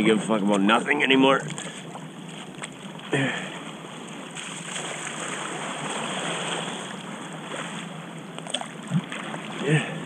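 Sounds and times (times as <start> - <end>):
water splashing around kayak: 3.6 - 10.0.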